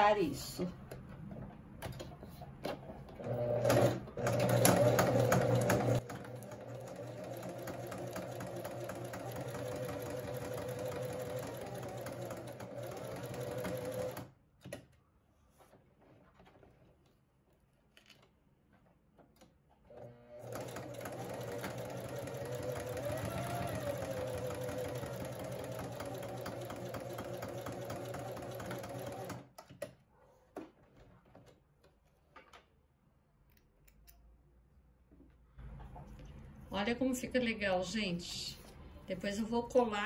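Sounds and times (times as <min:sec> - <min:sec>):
sewing machine stitching: 0:03.1 - 0:14.3, 0:19.9 - 0:29.5.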